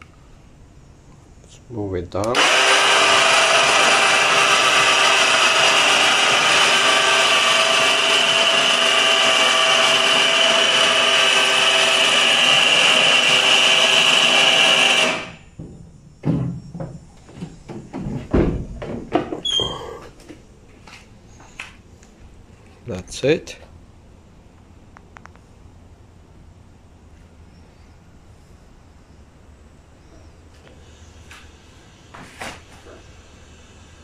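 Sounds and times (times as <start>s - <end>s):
electric winch motor running: 2.4s - 15.6s.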